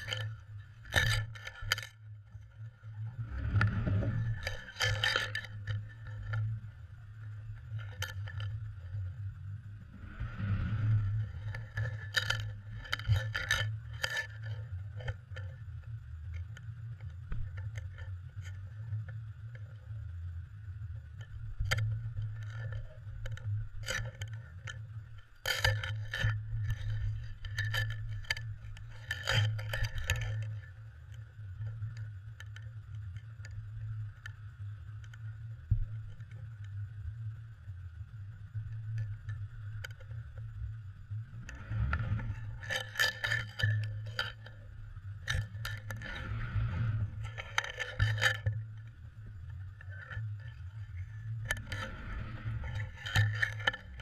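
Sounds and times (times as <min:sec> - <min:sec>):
steady low hum: 0:00.0 - 0:54.0
metal clinking underwater: 0:45.2 - 0:48.6.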